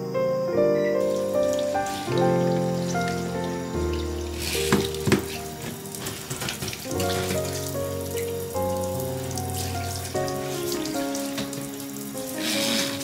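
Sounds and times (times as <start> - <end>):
background music with held notes: 0.0 - 13.0
tap water splashing in sink: 3.9 - 8.3, 9.2 - 13.0.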